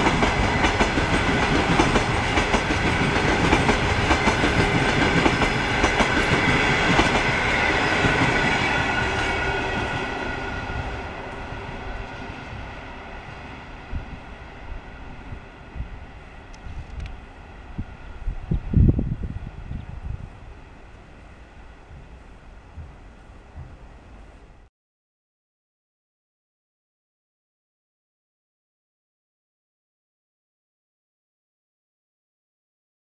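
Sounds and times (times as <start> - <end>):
train wheels clattering over rails: 0.0 - 10.2.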